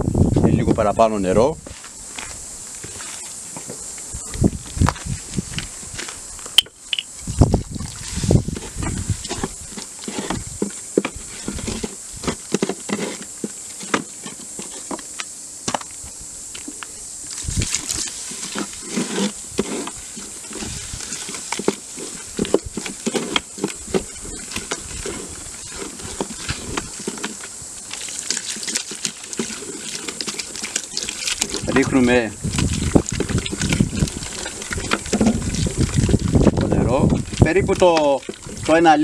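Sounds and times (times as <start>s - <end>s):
wooden spoon stirring thick paste: 17.8s - 39.0s.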